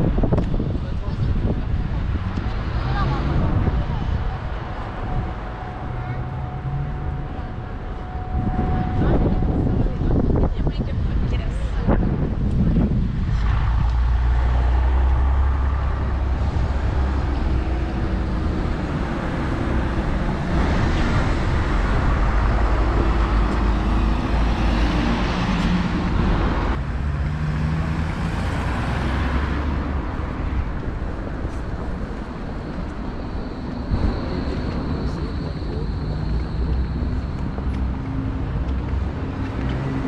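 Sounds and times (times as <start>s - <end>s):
road traffic rumble: 0.0s - 40.0s.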